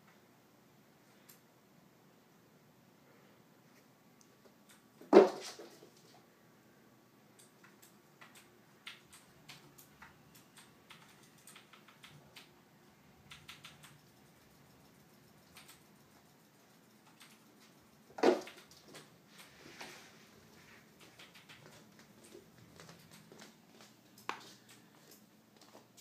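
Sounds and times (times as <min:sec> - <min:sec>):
paws and claws clicking on floor: 0:17.1 - 0:26.0.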